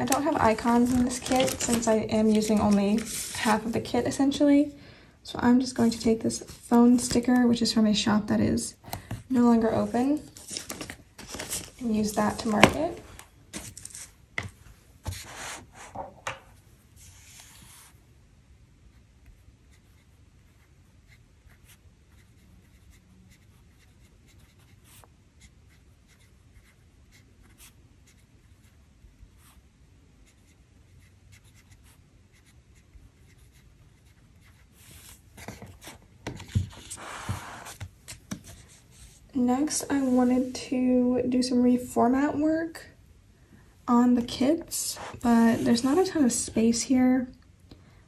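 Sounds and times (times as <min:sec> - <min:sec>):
paper handling and rubbing: 0:00.0 - 0:04.2, 0:09.7 - 0:14.2, 0:33.3 - 0:40.6, 0:44.9 - 0:46.3
pen scratching on paper: 0:19.3 - 0:29.6, 0:30.2 - 0:37.9.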